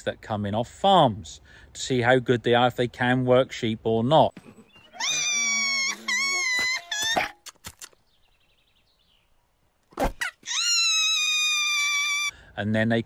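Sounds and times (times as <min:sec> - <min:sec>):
cartoon sheep bleating: 0:04.9 - 0:07.2.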